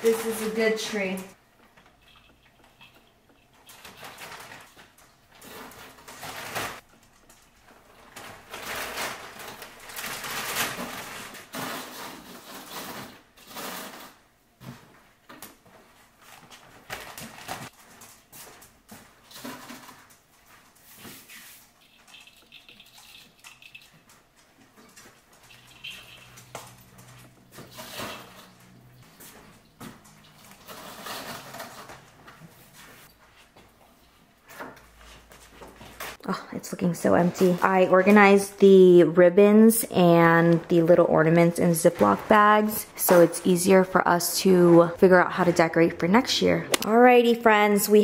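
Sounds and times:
plastic bag rustling: 3.6 - 6.9, 7.5 - 15.0, 15.8 - 23.8, 24.6 - 33.1.

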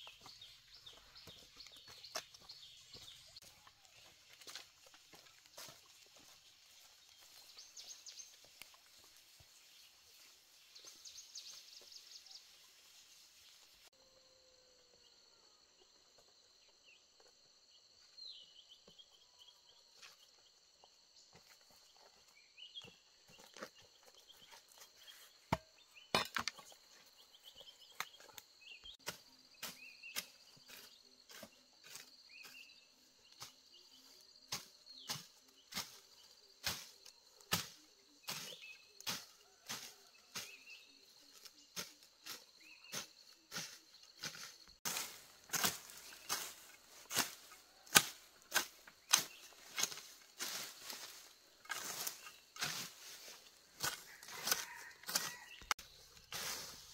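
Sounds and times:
footsteps on leaves: 0.0 - 13.8, 43.6 - 56.9
vegetation rustling and snapping: 44.2 - 52.9.

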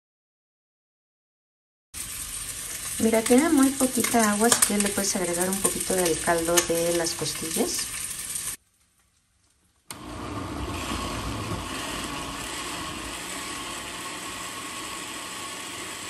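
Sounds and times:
blender running: 9.9 - 16.0.

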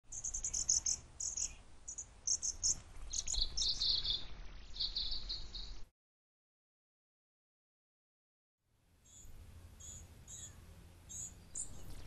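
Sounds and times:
small songbirds chirping: 0.0 - 5.9, 9.0 - 12.0.

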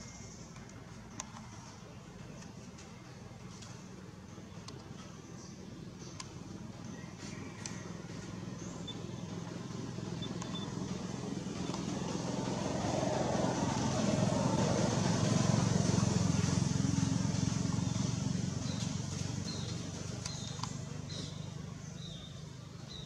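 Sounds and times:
passing motor vehicle engine hum: 5.7 - 23.0.

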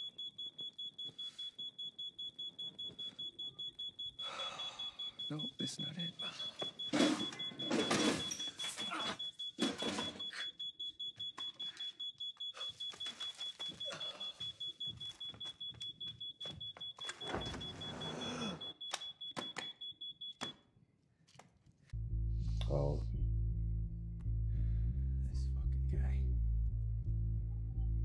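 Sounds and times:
detector alarm beeping rapidly: 0.0 - 20.5.

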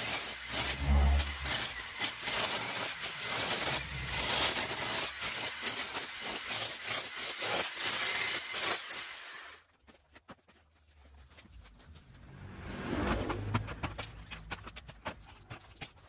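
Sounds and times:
demolition hammer chiselling concrete: 0.0 - 9.5.

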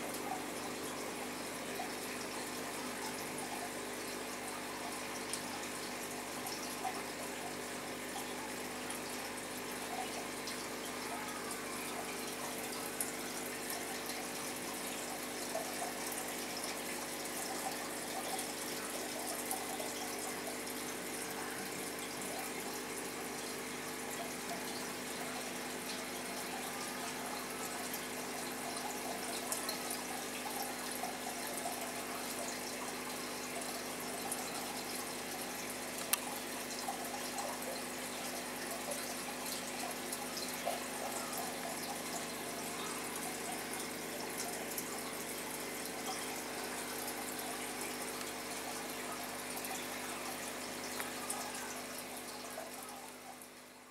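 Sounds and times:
aquarium pump hum: 0.0 - 53.9
water trickling and bubbling: 0.0 - 53.9
faint ticks: 36.0 - 36.3.

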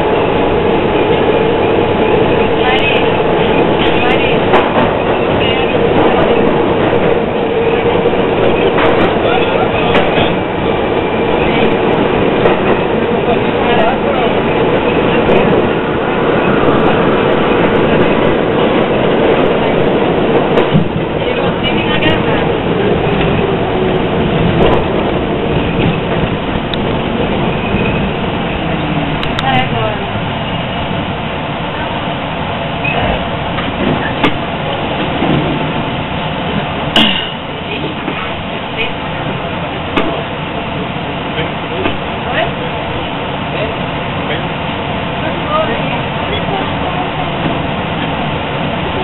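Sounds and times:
subway train roaring on rails: 0.0 - 49.0.

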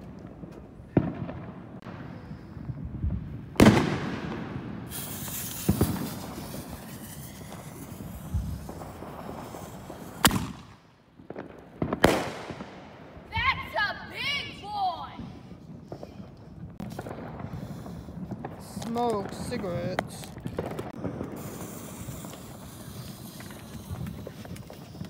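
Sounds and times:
firework bangs: 0.0 - 25.0
high hissing crackle: 4.7 - 11.1, 13.4 - 25.0.

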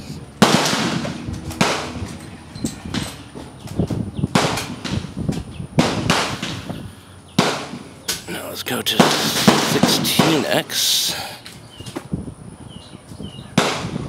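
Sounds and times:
gunshots ringing out: 0.4 - 2.2, 4.3 - 5.1, 5.8 - 6.7, 7.4 - 11.4, 13.6 - 14.0.

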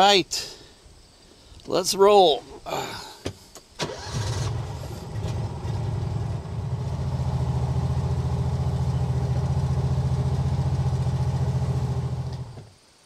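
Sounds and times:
utility vehicle engine running: 3.8 - 12.7.

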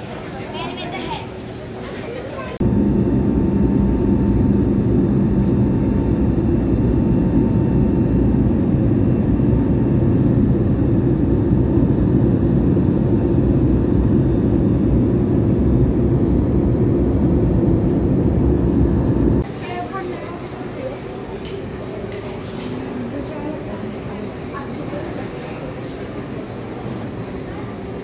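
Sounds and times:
jet engine cabin rumble: 0.0 - 22.4.

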